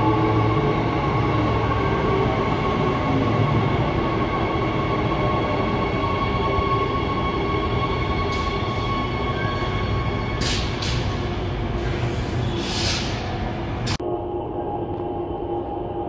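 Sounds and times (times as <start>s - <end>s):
electric train rumble and whine: 0.0s - 16.0s
train air hisses: 11.8s - 13.4s.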